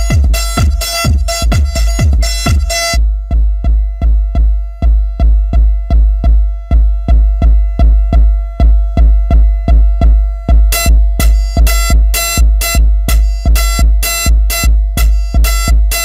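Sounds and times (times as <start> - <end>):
drum machine kick drum: 0.0 - 16.0
high percussion and synth layers: 0.0 - 16.0.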